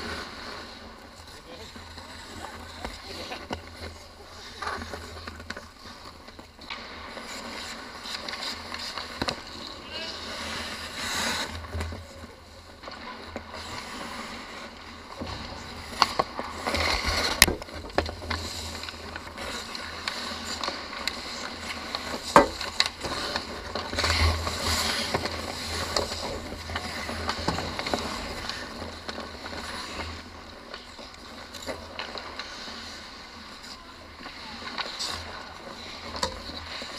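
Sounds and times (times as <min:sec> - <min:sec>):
hockey sticks and puck clacking: 0:00.0 - 0:36.9
ice skates scraping: 0:00.0 - 0:36.9.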